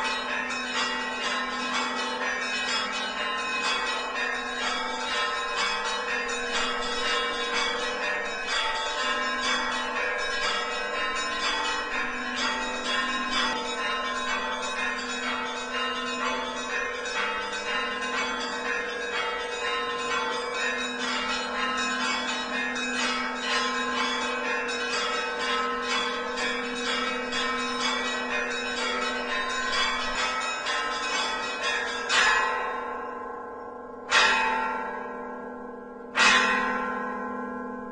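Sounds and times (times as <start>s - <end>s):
church bells pealing: 0.0s - 37.9s.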